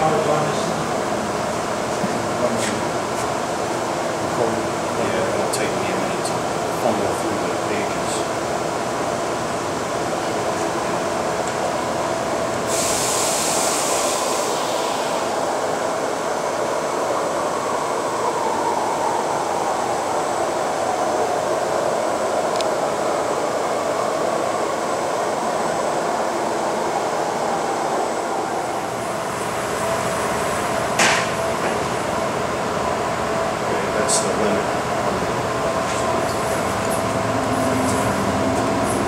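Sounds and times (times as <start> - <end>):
hiss: 12.6 - 15.3
machining center mechanical whir: 13.4 - 39.0.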